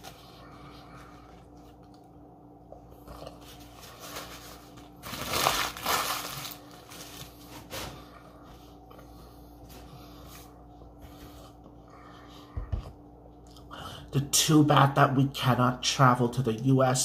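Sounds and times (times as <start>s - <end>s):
paper wrapper crumpling: 3.5s - 7.9s.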